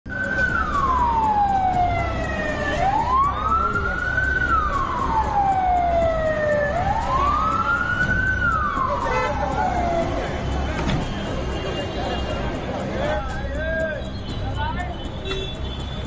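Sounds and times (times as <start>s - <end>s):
road traffic rumble: 0.0s - 16.0s
emergency siren wailing: 0.1s - 11.0s.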